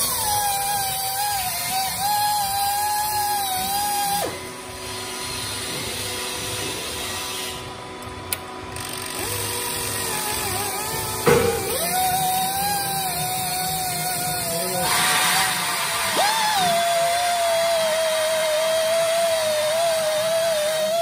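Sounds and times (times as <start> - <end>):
hydraulic pump whining: 0.0 - 21.0
sharp knock: 11.2 - 12.1.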